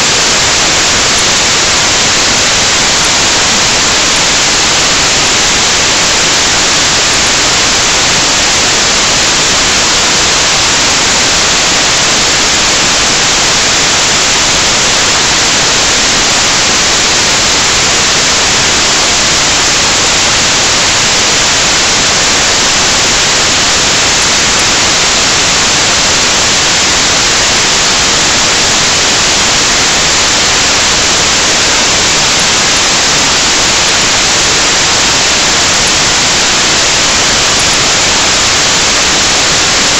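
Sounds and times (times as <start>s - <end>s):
loud static hiss: 0.0s - 39.9s.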